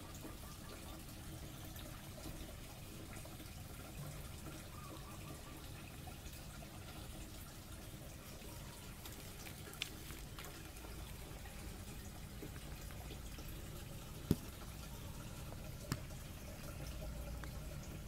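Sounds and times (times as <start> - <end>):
low background hum: 0.0 - 18.0
rabbit eating pellets: 5.6 - 18.0.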